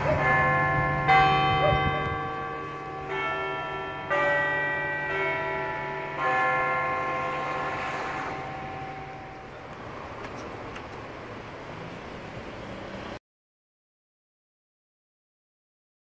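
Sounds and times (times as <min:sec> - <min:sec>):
cathedral bells ringing: 0:00.0 - 0:10.1.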